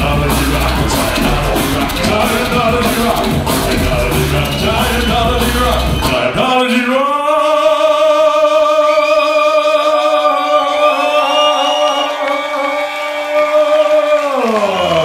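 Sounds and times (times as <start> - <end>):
drum and bass beat: 0.0 - 6.4.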